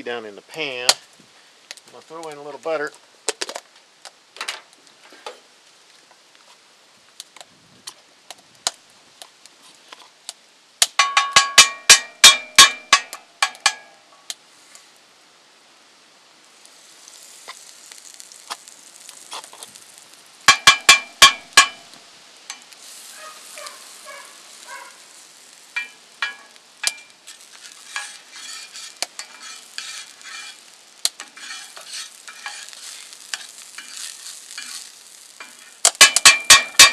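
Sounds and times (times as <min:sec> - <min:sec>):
butter sizzling: 0:08.5 - 0:36.9
spatula tapping skillet: 0:10.8 - 0:13.9, 0:20.4 - 0:21.9, 0:22.5 - 0:36.9.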